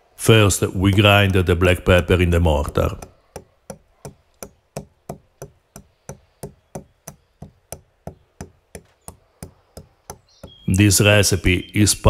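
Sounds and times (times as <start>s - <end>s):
stone pestle pounding in mortar: 0.6s - 10.7s.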